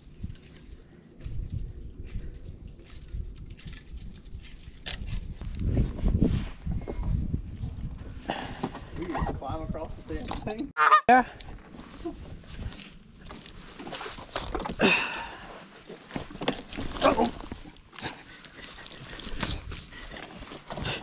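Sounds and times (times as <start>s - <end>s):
twigs cracking and rustling: 0.0s - 5.7s, 11.4s - 20.8s.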